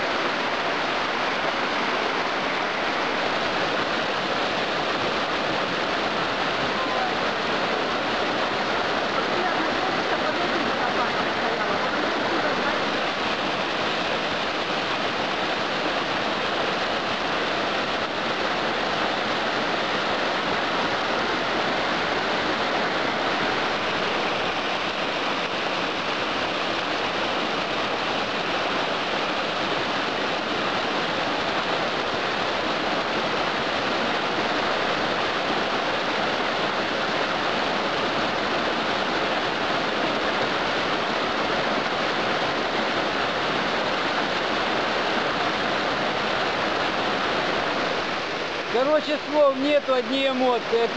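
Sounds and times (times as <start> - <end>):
waterfall pouring onto rocks: 48.7 - 50.9.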